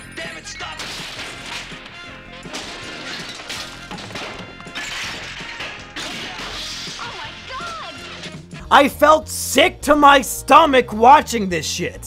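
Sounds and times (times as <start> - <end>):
objects crashing and smashing: 0.6 - 8.4.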